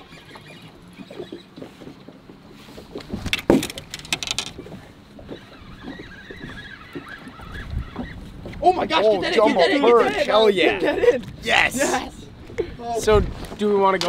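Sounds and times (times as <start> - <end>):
fishing rod and reel handling: 0.0 - 8.6
waves slapping boat hull: 0.0 - 14.0.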